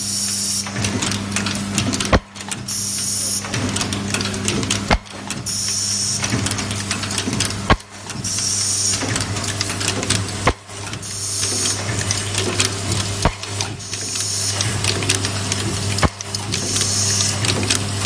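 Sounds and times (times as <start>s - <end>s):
machine humming: 0.0s - 18.0s
sharp machine knock: 0.6s - 12.1s, 12.9s - 13.8s, 16.0s - 16.8s.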